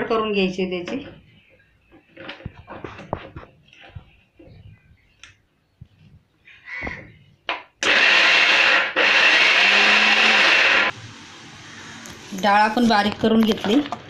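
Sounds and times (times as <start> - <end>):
mixer grinder motor running: 7.8 - 10.9.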